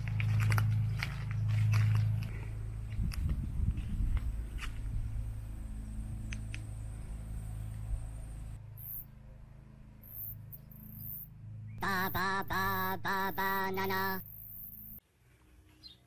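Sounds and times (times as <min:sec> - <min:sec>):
low steady rumble: 0:00.0 - 0:10.6
high-pitched cartoon voice: 0:11.8 - 0:14.2.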